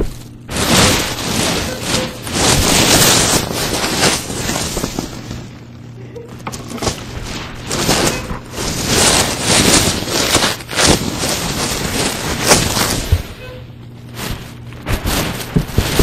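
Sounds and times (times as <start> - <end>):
foam rubbing on microphone: 0.5 - 5.5, 7.0 - 13.4.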